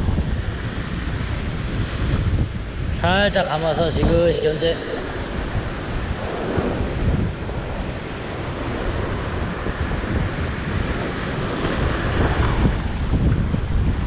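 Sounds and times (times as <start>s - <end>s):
surf breaking over rocks: 0.0s - 14.0s
wind buffeting microphone: 0.0s - 14.0s.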